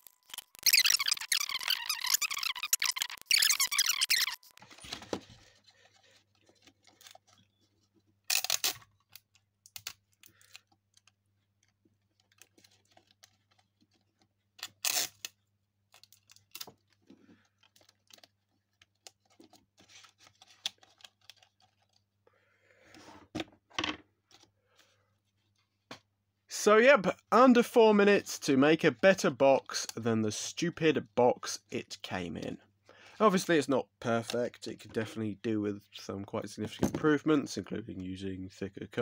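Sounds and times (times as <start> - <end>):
card rustling and clicking: 0.0 - 15.2, 15.9 - 22.1.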